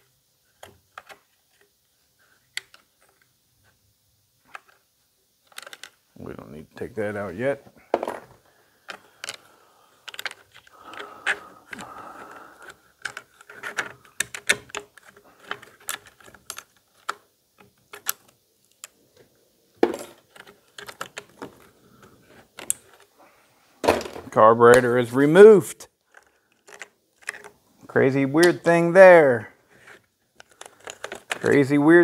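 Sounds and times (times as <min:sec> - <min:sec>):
plastic and metal parts clicking: 0:00.6 - 0:01.7, 0:02.5 - 0:03.3, 0:05.4 - 0:06.0, 0:08.8 - 0:19.3, 0:20.1 - 0:23.1, 0:26.0 - 0:27.6, 0:29.7 - 0:31.8.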